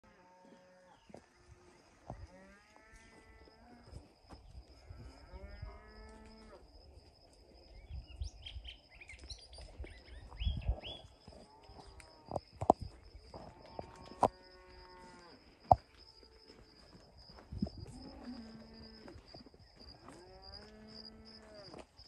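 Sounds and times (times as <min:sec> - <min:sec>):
birds chirping: 0:07.7 - 0:11.4.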